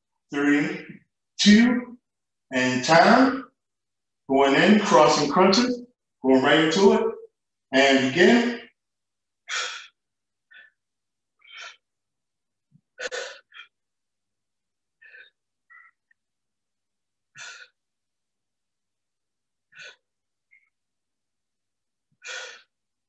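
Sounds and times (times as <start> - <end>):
person exertion breathing: 9.5 - 10.8, 11.4 - 11.9, 12.9 - 13.8, 15.0 - 15.9, 17.3 - 17.8, 19.7 - 20.1, 22.2 - 22.8.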